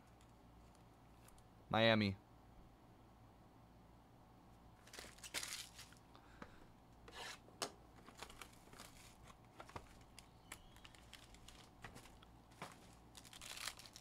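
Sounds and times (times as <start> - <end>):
plastic wrap crinkling: 4.8 - 6.0, 8.0 - 14.0.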